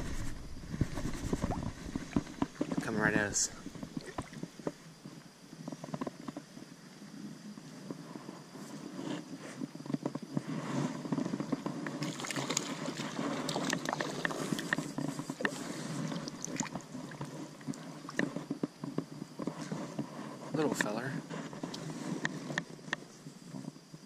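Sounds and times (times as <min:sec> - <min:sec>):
knocks and rustles of wading: 0:00.0 - 0:06.5, 0:09.8 - 0:22.6
stream water splashing: 0:12.0 - 0:14.8.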